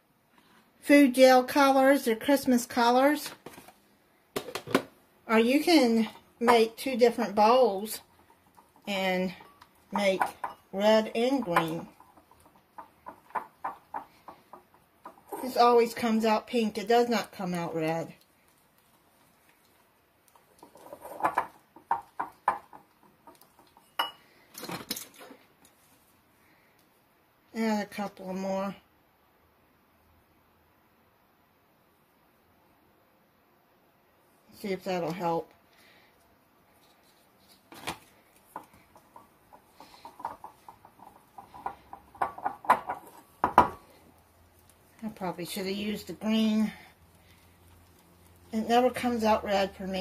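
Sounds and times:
whisk tapping ceramic bowl: 7.4 - 15.4, 21.2 - 24.2, 38.4 - 43.8
knock on bowl: 41.6 - 43.8.

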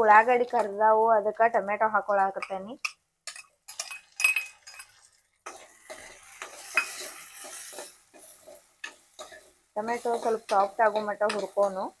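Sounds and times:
tomato sizzling in hot oil: 0.0 - 12.0
spoon scraping pan: 2.4 - 12.0
metal spoon scraping steel bowl: 3.3 - 11.6.

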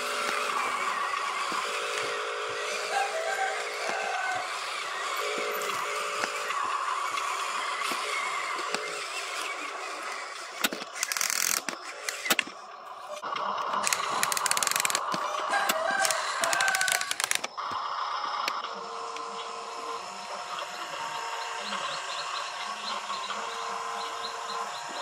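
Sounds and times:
toy truck electric motor whining: 0.0 - 25.0
rapid clicking and crackling: 5.2 - 12.6, 13.2 - 17.8.

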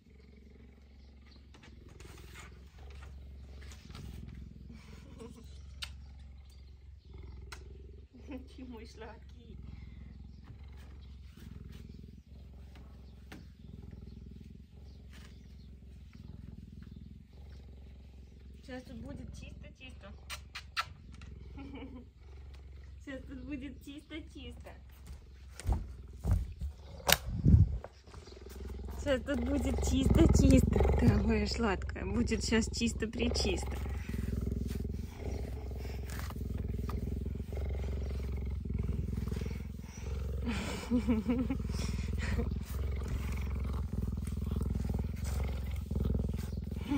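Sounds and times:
cheetah purring: 0.0 - 46.9.

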